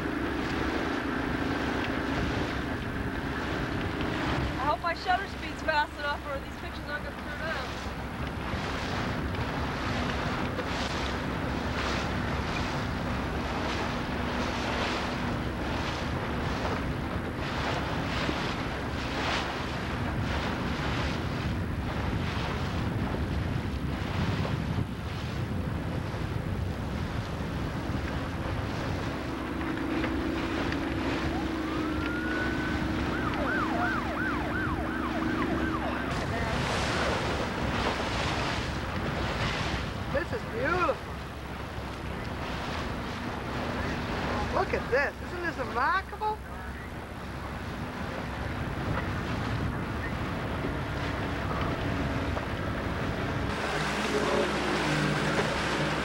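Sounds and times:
boat motor: 0.0 - 56.0
water rushing: 0.0 - 56.0
wind buffeting microphone: 0.0 - 56.0
siren wailing and yelping: 31.3 - 36.1.

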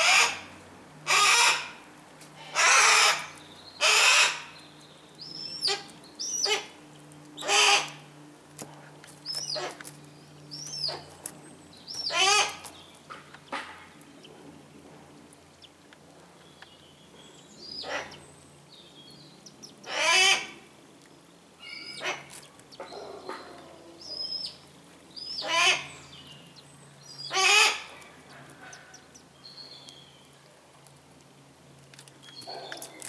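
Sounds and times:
hawks calling: 0.0 - 1.8, 2.4 - 4.6, 5.2 - 8.1, 11.9 - 14.3, 17.7 - 18.2, 19.6 - 20.6, 21.6 - 26.2, 27.1 - 29.2.

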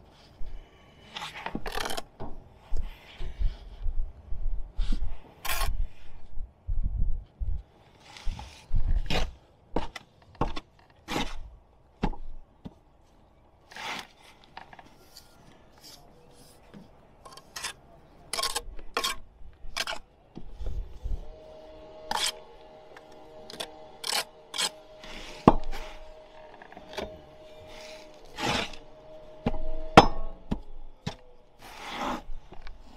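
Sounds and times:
jointing tool scraping mortar: 1.1 - 2.0, 13.7 - 20.1, 22.1 - 22.4, 23.0 - 28.8.

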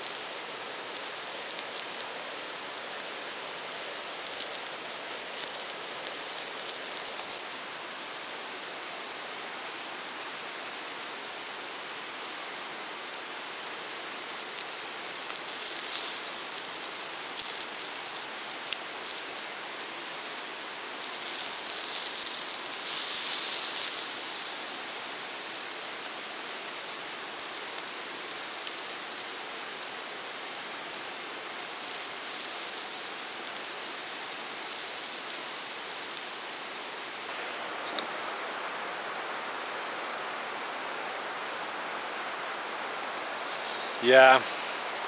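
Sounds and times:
patties sizzling: 0.0 - 9.3, 10.8 - 37.6, 43.4 - 44.8.

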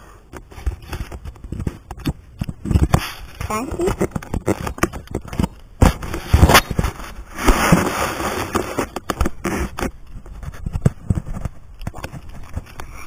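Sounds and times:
rustling: 0.0 - 13.0
small knocks and clicks: 0.3 - 6.8
microphone handling noise: 0.3 - 13.0
scraping and rubbing: 0.3 - 13.0.

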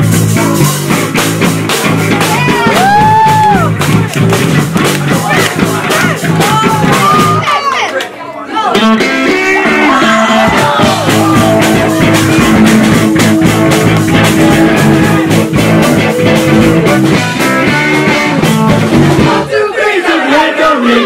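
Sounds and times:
bass guitar: 0.0 - 7.5, 8.7 - 19.5
drum kit beat: 0.0 - 7.6, 8.7 - 19.5
electric guitar: 8.8 - 19.4.

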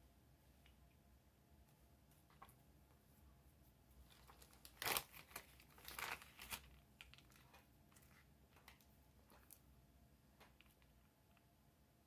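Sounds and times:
plastic bag crinkling: 4.1 - 9.6.

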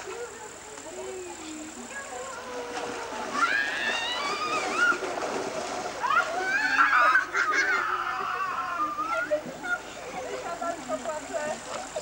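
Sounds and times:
water splashing in a pool: 0.0 - 12.0
children shrieking and shouting: 2.3 - 5.3, 6.0 - 10.4.

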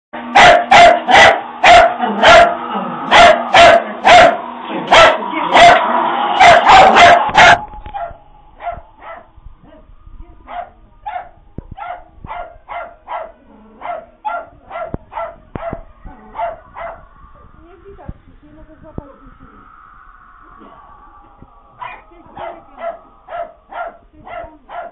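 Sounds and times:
puppy barking: 0.3 - 5.8, 6.4 - 9.3, 10.5 - 17.0, 21.8 - 24.9.

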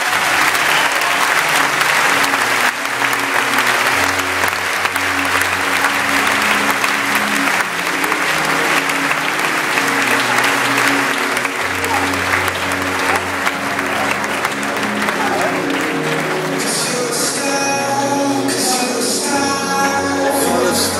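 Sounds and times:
audience applauding: 0.0 - 20.9.

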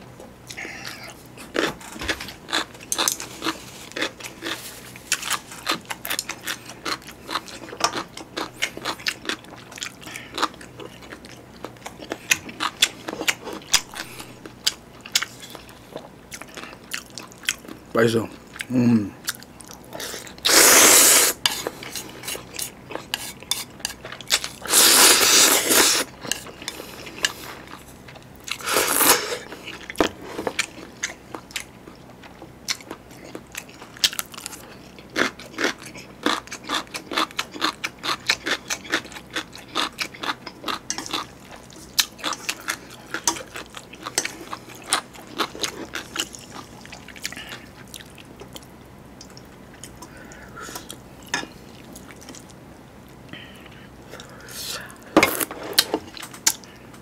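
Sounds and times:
chewing and crunching: 0.2 - 20.5, 21.4 - 57.0
loud noodle slurps: 20.1 - 21.4, 24.6 - 26.1, 28.6 - 29.4.

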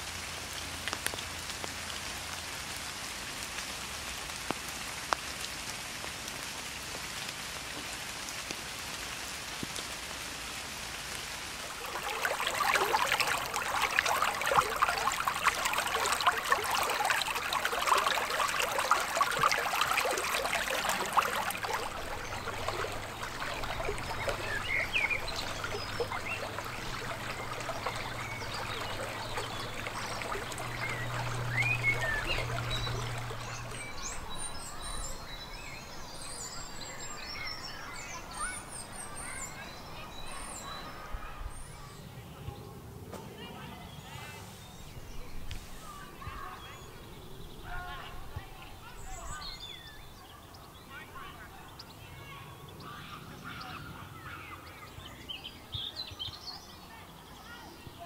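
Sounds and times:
rain falling on grass: 0.0 - 40.4
stream babbling: 5.5 - 41.6, 44.1 - 58.0
drops ticking: 11.7 - 34.6.

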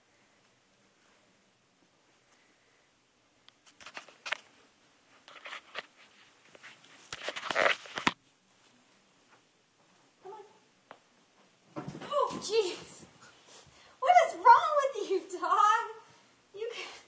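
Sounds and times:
scuffling on carpeted stairs: 11.4 - 13.8.

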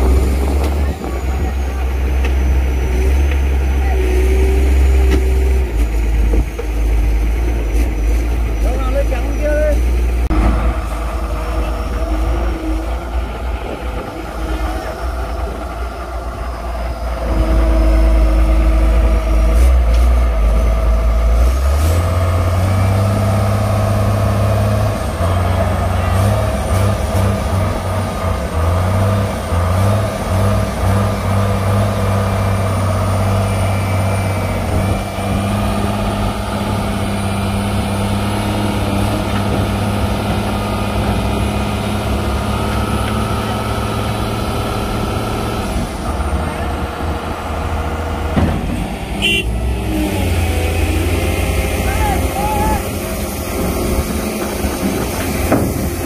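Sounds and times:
excavator diesel engines: 0.0 - 56.0.

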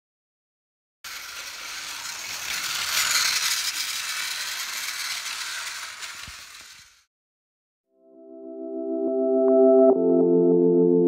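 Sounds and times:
toy train motor whirring: 1.1 - 7.1.

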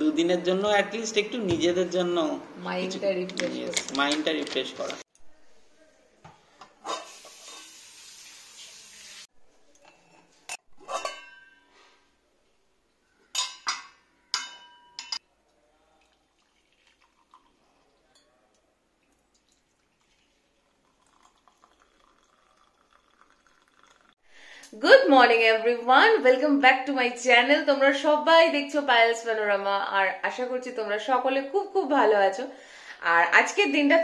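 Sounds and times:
crockery and cutlery clinking: 9.8 - 12.0, 13.2 - 15.3.

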